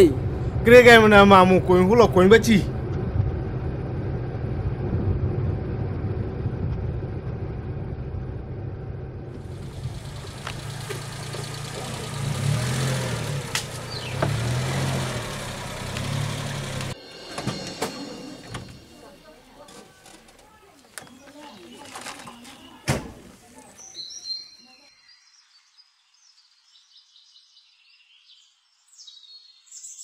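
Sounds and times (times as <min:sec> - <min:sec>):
small van engine running: 0:02.7 - 0:20.5.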